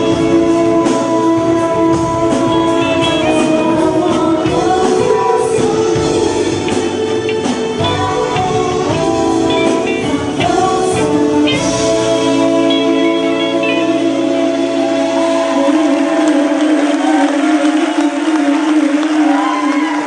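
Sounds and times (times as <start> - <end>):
live band music: 0.0 - 20.0
woman singing: 0.0 - 20.0.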